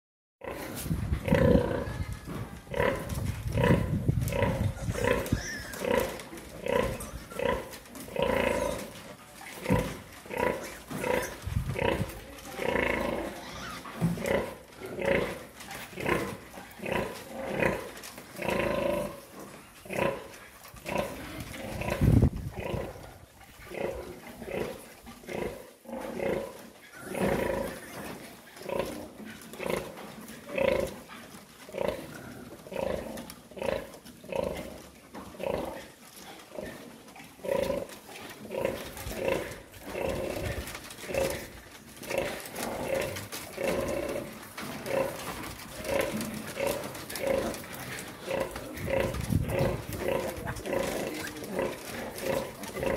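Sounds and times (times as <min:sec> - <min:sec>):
sow grunting: 0:37.4 - 0:52.9.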